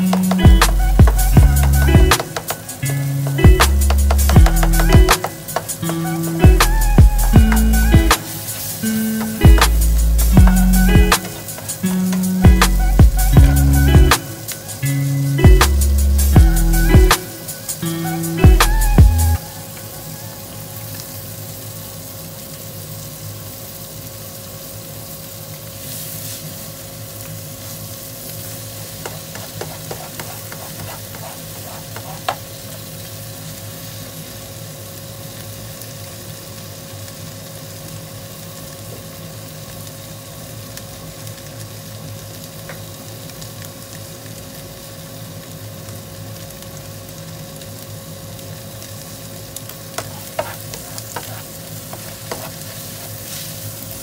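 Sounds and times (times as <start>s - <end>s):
food sizzling in frying pan: 0.0s - 54.0s
spatula knocking pan: 0.1s - 2.6s, 3.5s - 5.8s, 29.0s - 32.5s, 50.0s - 53.4s.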